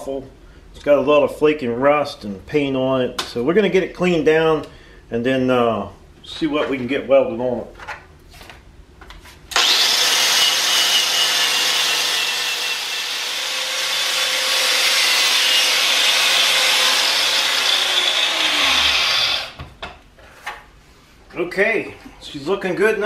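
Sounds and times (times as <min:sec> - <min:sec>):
grinder winding down whine: 0:09.5 - 0:19.6
wire brush grinder scraping rust: 0:09.6 - 0:19.6.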